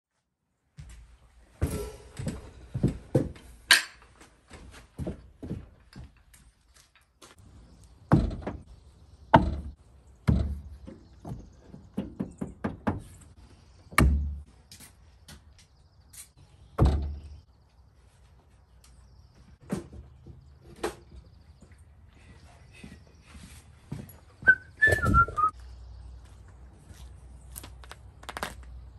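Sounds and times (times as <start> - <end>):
chainsaws knocking on wooden racks: 8.1 - 8.7, 9.3 - 13.1.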